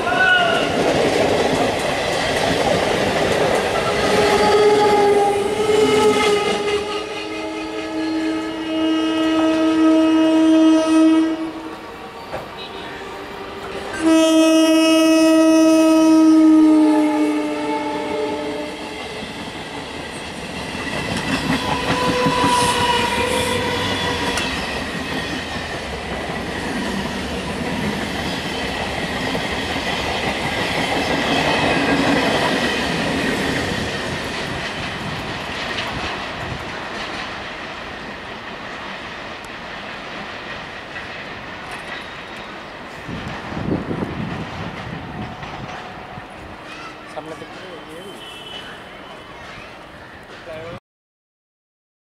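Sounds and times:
high squealing wheels: 0:18.4 - 0:37.4, 0:41.0 - 0:44.0, 0:44.6 - 0:50.6
train wheels clattering over rail joints: 0:20.5 - 0:46.8.

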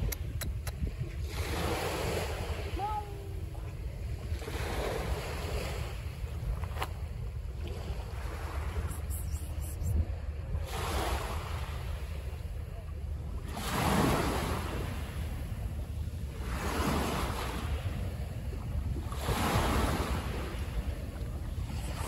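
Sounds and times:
wind buffeting microphone: 0:00.0 - 0:12.4
sea waves washing in: 0:00.9 - 0:06.8, 0:07.5 - 0:12.6, 0:13.3 - 0:22.0.

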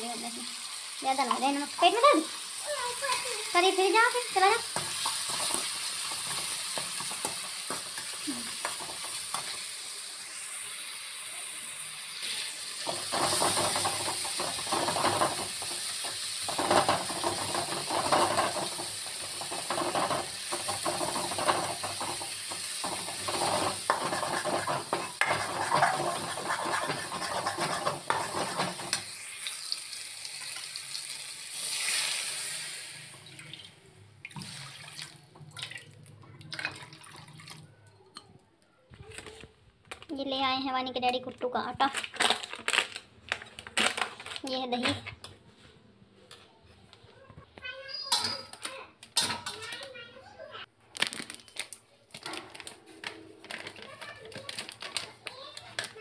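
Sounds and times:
food sizzling in a pan: 0:00.0 - 0:33.8
ladle scraping a pan: 0:12.9 - 0:29.1.

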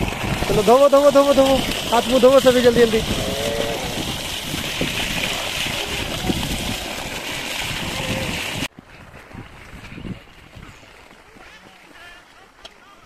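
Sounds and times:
water gushing from a pipe: 0:00.0 - 0:08.7
water splashing onto mud: 0:00.0 - 0:10.5.

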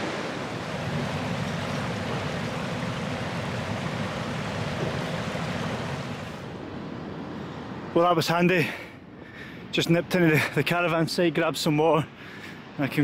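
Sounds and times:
stream water rushing: 0:00.0 - 0:07.9.

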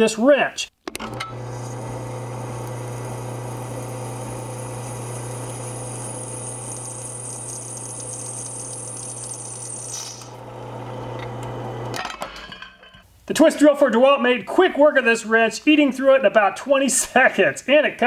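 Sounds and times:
drill press motor hum: 0:01.0 - 0:12.0
drill cutting through steel: 0:01.3 - 0:10.4.

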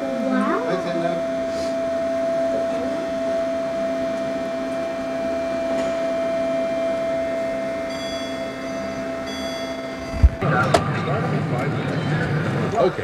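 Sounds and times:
faint high electronic tone: 0:00.0 - 0:10.4
lift drive humming and whining: 0:00.0 - 0:13.0.

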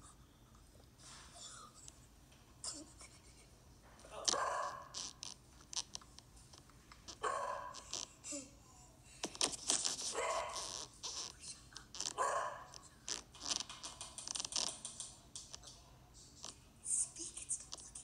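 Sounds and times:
dog barking: 0:04.3 - 0:05.0, 0:07.2 - 0:08.0, 0:10.1 - 0:10.9, 0:12.2 - 0:12.8.

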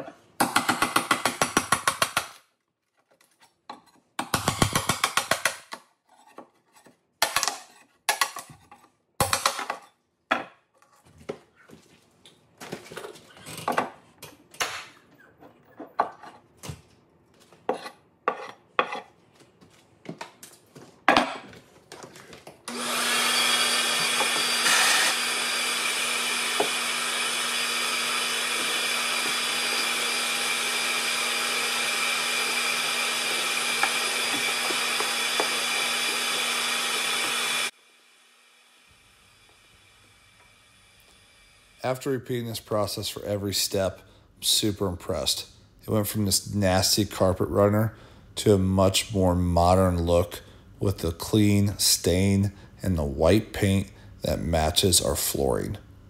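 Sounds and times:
shop vacuum humming: 0:22.7 - 0:42.0.

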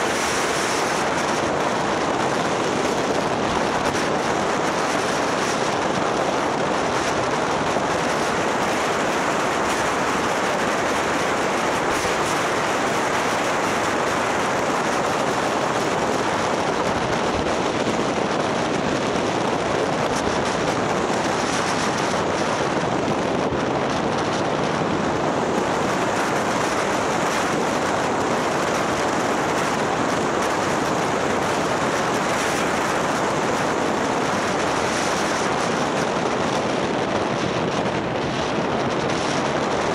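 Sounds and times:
motorbike road noise: 0:00.0 - 0:39.9
wind rushing on microphone: 0:00.0 - 0:39.9.

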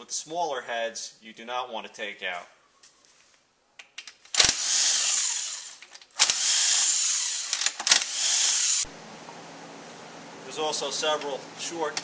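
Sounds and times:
power driver spinning out bolts: 0:04.3 - 0:08.8.

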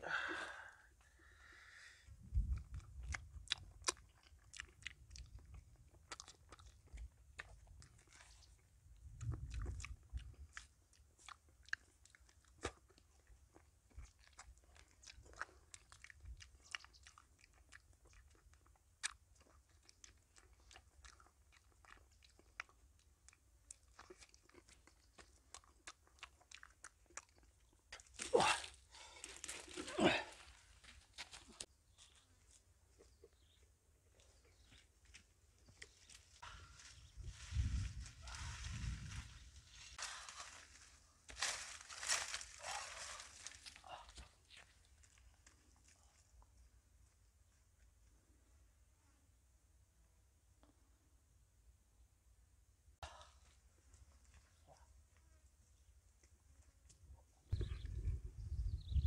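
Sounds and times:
person chewing banana: 0:02.4 - 0:29.9.

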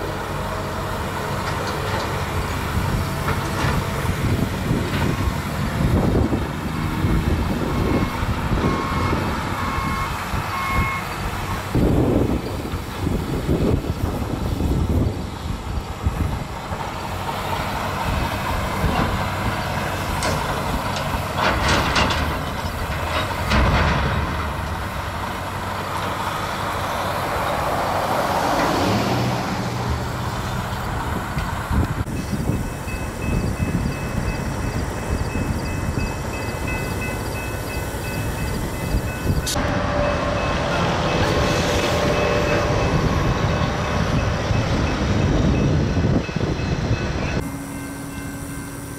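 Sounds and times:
diesel excavator engines: 0:00.0 - 0:48.9
metal scraping and clanking: 0:18.8 - 0:25.2.

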